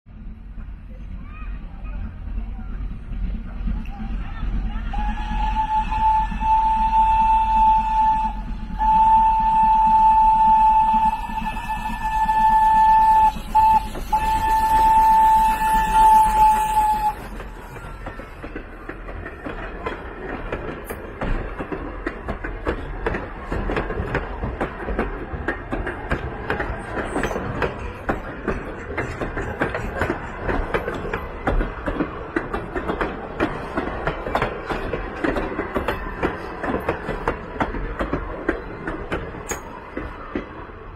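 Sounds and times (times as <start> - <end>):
train coaches rattling on rails: 0.1 - 40.9
steam locomotive whistle: 4.9 - 17.8.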